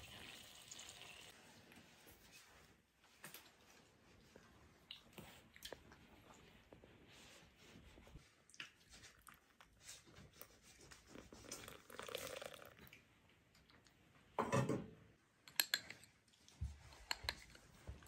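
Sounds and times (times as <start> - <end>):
butter trickling into bowl: 11.1 - 13.0
metal spoon clinking bowl: 15.4 - 16.1.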